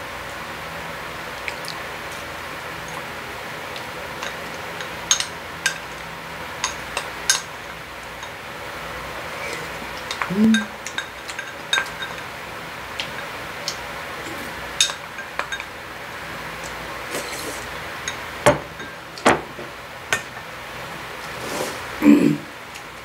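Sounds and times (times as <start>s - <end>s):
chopsticks clinking on ceramic bowl: 9.5s - 12.2s.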